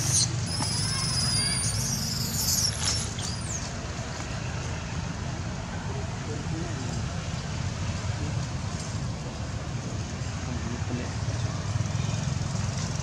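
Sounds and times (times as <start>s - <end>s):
baby monkey crying: 0.0s - 2.6s.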